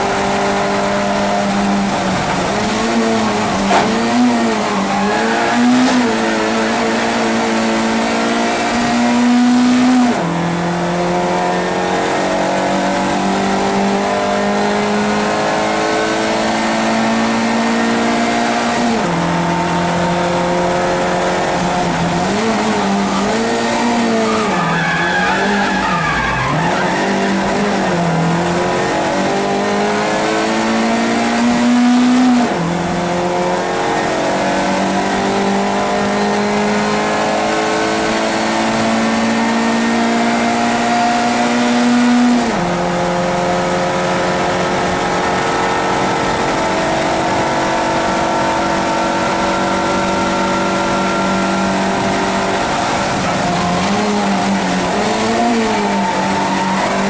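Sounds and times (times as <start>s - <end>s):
racing car engine revving: 0.0s - 57.0s
tyre squeal: 22.7s - 28.0s.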